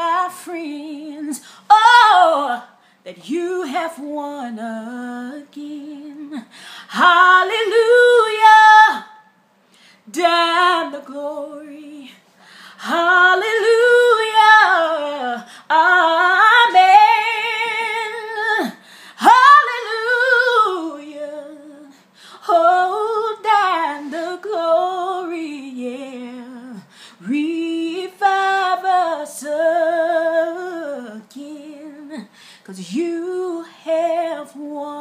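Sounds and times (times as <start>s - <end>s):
woman singing a cappella: 0.0s - 35.0s
woman breathing: 6.4s - 7.0s, 9.6s - 10.1s, 12.2s - 12.9s, 15.4s - 15.7s, 18.8s - 19.2s, 21.9s - 22.4s, 26.8s - 27.2s, 32.2s - 32.7s.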